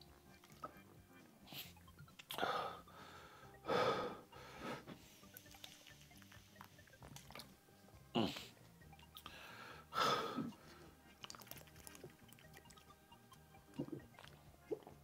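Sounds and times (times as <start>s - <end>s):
person gulping from a bottle: 13.7s - 15.0s.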